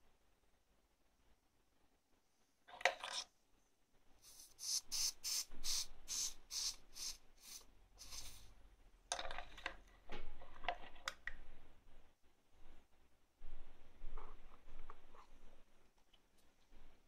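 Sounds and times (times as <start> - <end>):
soldering iron hissing on wet sponge: 4.3 - 8.5.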